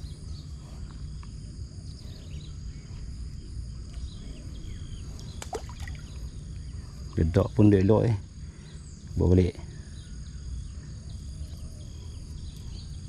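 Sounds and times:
insects trilling: 0:00.0 - 0:13.0
low steady rumble: 0:00.0 - 0:13.0.

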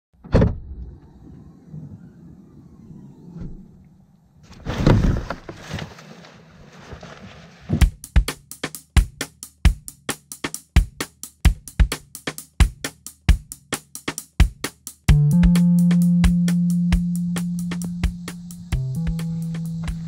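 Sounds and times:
car rear hatch opening: 0:00.2 - 0:05.4
music with drum beat: 0:07.8 - 0:20.0.

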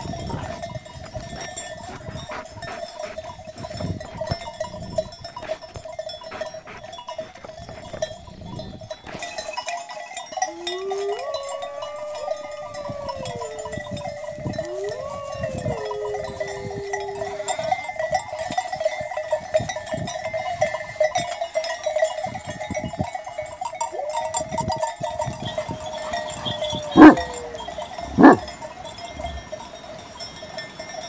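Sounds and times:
sheep bells ringing: 0:00.0 - 0:31.0
long animal calls: 0:10.4 - 0:17.8, 0:25.2 - 0:28.6.

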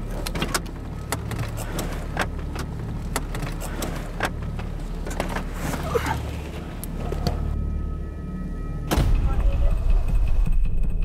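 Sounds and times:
clicks and rattles in car cabin: 0:00.0 - 0:07.6
low engine and road hum: 0:00.0 - 0:10.4.

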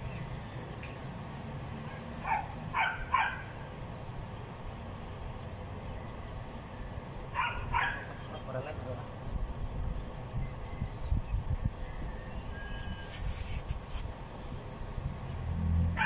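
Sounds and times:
dog barking: 0:02.2 - 0:03.5, 0:07.4 - 0:08.1.

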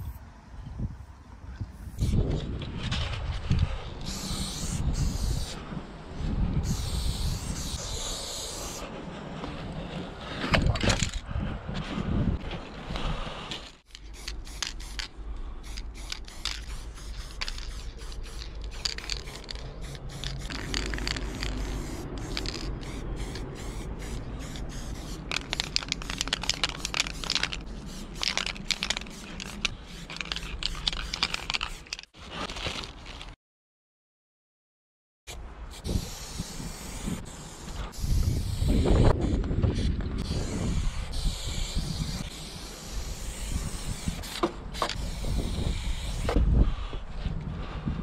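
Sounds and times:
spray paint can hissing: 0:04.0 - 0:05.6, 0:06.6 - 0:08.8, 0:13.9 - 0:32.1, 0:35.7 - 0:46.4
steady low rumble: 0:14.0 - 0:31.6.

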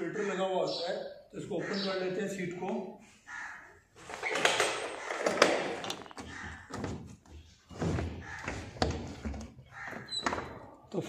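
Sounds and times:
rustling and clattering: 0:04.0 - 0:10.7.

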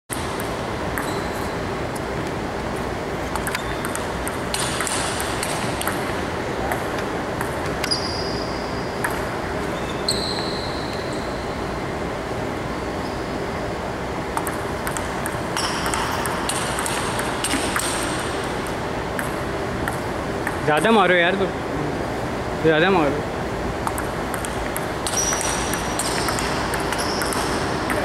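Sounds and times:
table tennis ball hits: 0:03.4 - 0:08.0, 0:09.0 - 0:09.3, 0:14.4 - 0:18.3, 0:23.8 - 0:28.0
short high squeaks: 0:09.7 - 0:11.4.

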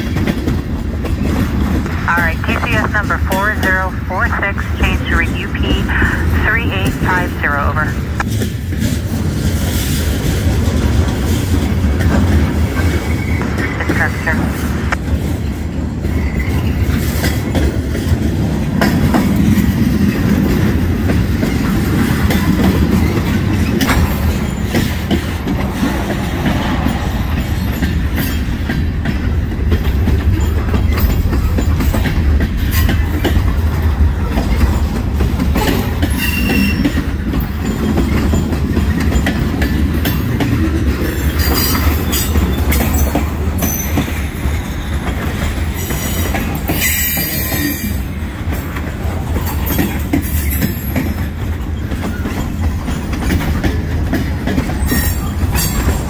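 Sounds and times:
train wheels rumbling on rails: 0:00.0 - 0:56.0
wheels clicking over rail joints: 0:16.1 - 0:56.0.

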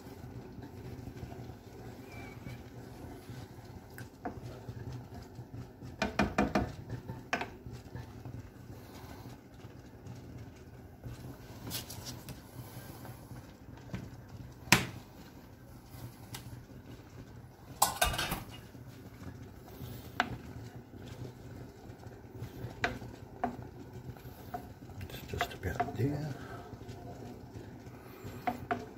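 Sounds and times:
low steady hum: 0:00.0 - 0:28.9
wooden spoon stirring in a pan: 0:00.0 - 0:28.9
utensils knocking pots and pans: 0:17.8 - 0:18.6.

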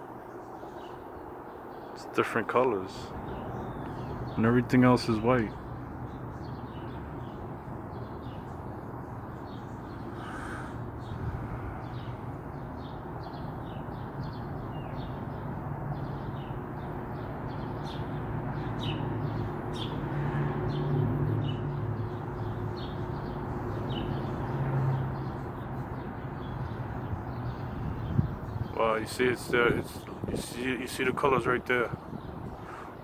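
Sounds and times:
small birds chirping: 0:00.0 - 0:33.0
loud bird call: 0:09.1 - 0:15.4, 0:31.8 - 0:33.0.

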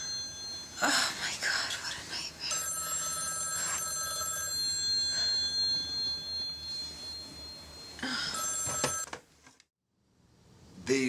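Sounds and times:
telephone ringing: 0:00.0 - 0:01.0, 0:02.5 - 0:09.3.

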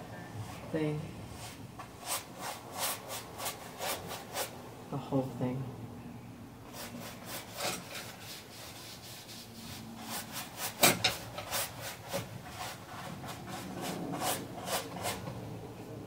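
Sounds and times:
paintbrush strokes on canvas: 0:06.7 - 0:10.8.

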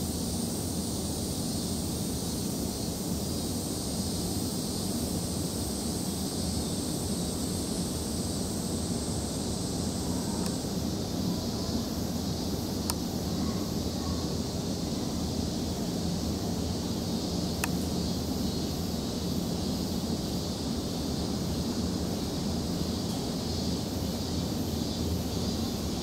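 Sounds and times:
background hum and hiss: 0:00.0 - 0:26.0
faint click: 0:10.4 - 0:10.6, 0:12.8 - 0:13.0, 0:17.6 - 0:17.8.

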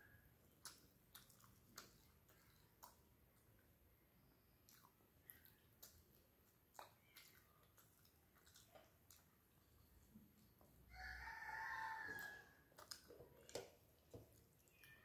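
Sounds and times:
chewing: 0:00.0 - 0:15.0
fingers mixing rice on plate: 0:00.5 - 0:03.7, 0:04.6 - 0:15.0
rooster crowing: 0:10.9 - 0:12.6.

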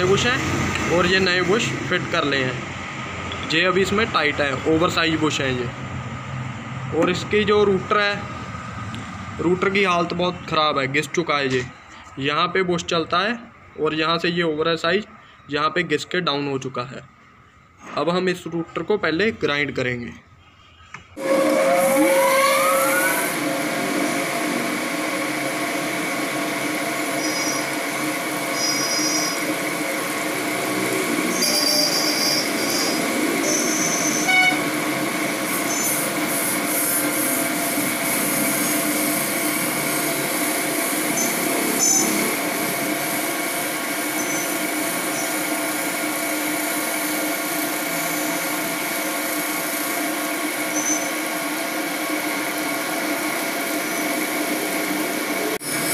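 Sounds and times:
short high squeaks: 0:21.2 - 0:23.4, 0:27.1 - 0:27.7, 0:28.5 - 0:29.4, 0:31.3 - 0:34.7, 0:41.2 - 0:42.2, 0:44.1 - 0:45.4, 0:50.7 - 0:51.2
grinding machine whine: 0:21.2 - 0:55.9.

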